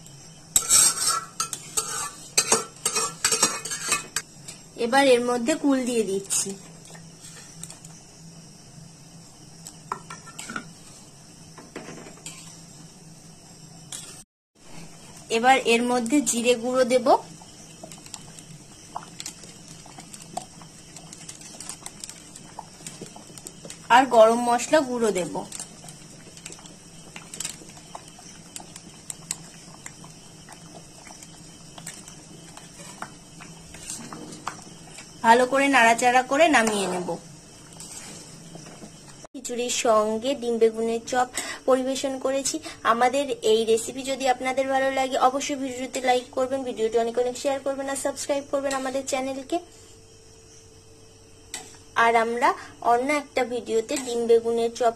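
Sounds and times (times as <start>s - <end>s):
faint steady hum: 0.0s - 54.9s
utensil clinking on metal pot: 0.6s - 4.2s.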